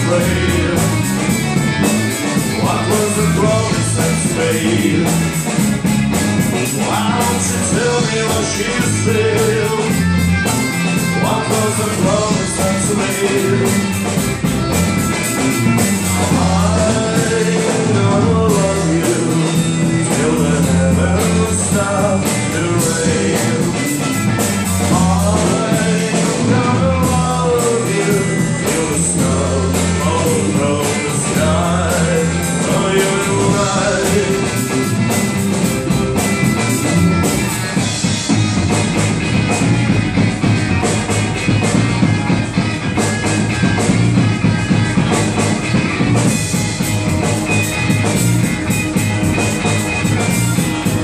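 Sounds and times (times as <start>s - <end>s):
person singing: 0.0s - 1.6s, 2.3s - 5.5s, 6.6s - 14.2s, 15.3s - 37.8s
bass guitar: 0.0s - 51.0s
drum kit: 0.0s - 51.0s
electric guitar: 0.0s - 51.0s.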